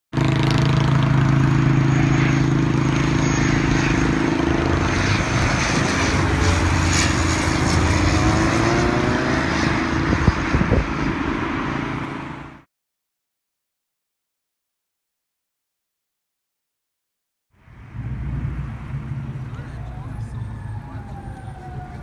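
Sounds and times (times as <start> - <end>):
airliner engines droning: 0.2 - 12.7, 17.6 - 22.0
broad rushing noise: 0.2 - 12.7, 17.6 - 22.0.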